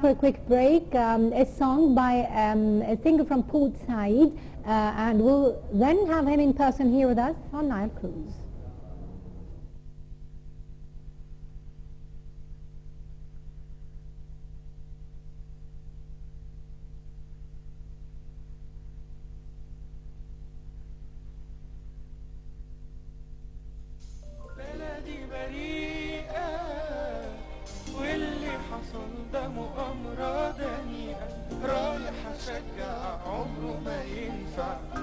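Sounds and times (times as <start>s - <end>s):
pop music with pulsing chord: 24.2s - 35.0s
person singing with vibrato: 24.4s - 35.0s.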